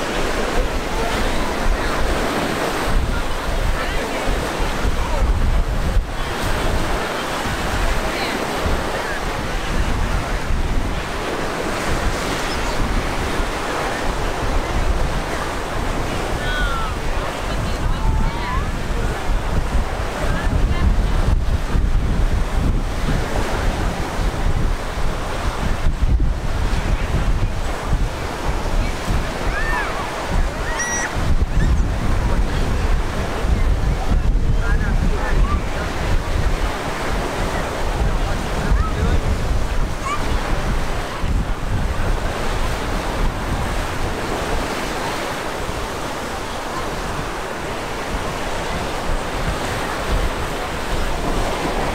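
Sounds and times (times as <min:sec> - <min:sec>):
surf washing: 0:00.0 - 0:51.9
wind buffeting microphone: 0:00.0 - 0:51.9
faint high-pitched calls: 0:30.6 - 0:31.8.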